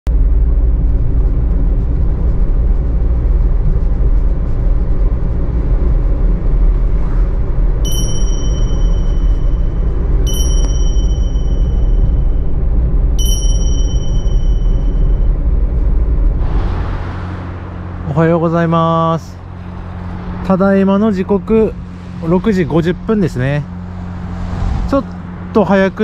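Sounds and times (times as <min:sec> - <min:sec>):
vehicle cabin engine and road rumble: 0:00.1 - 0:26.0
bright bell-like chimes: 0:07.9 - 0:12.5, 0:13.2 - 0:15.4.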